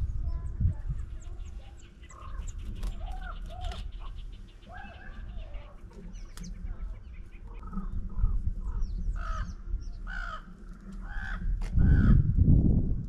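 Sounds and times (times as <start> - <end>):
bird cawing harshly: 10.1 - 12.2.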